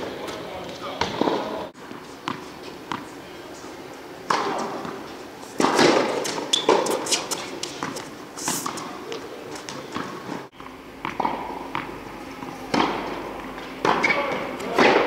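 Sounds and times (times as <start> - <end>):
racket hitting tennis ball: 1.0 - 3.1, 4.2 - 15.0
ball bouncing on court: 2.2 - 3.1, 11.0 - 13.2, 13.8 - 15.0.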